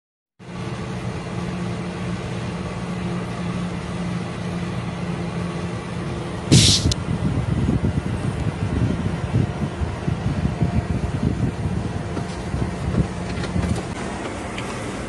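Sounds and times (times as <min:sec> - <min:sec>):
even hiss: 0:06.5 - 0:07.0.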